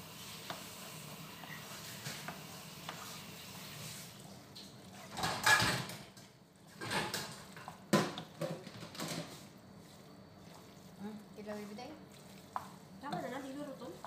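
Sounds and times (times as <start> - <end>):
frying pan clattering on metal grate: 5.2 - 6.1.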